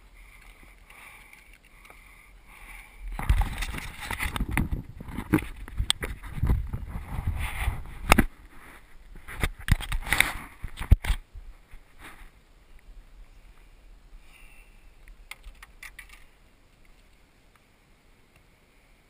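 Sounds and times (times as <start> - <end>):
camera handling rubbing and knocking: 3.1 - 12.3.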